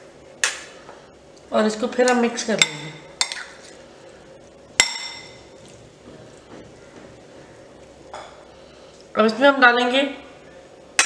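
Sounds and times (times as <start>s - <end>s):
soft stirring: 1.3s - 9.4s.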